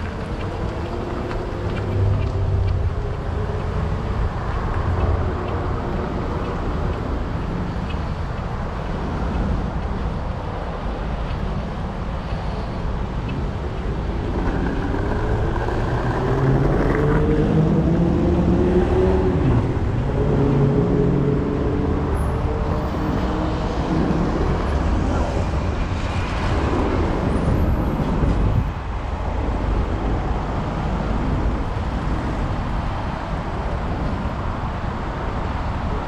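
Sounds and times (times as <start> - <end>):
street traffic rumble: 0.0 - 36.0
vehicle engine speeding up: 14.4 - 24.6.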